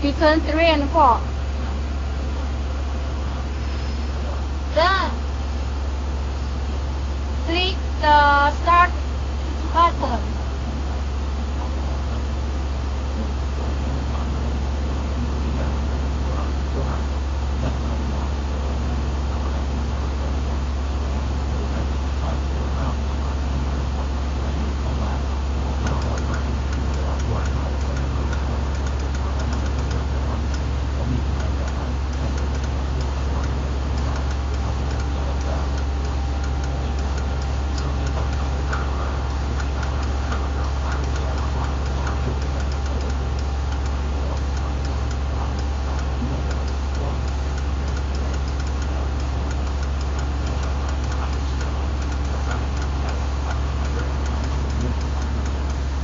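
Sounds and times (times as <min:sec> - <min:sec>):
constant hiss: 0:00.0 - 0:56.0
vibration table low hum: 0:00.0 - 0:56.0
faint irregular ticking: 0:13.1 - 0:56.0.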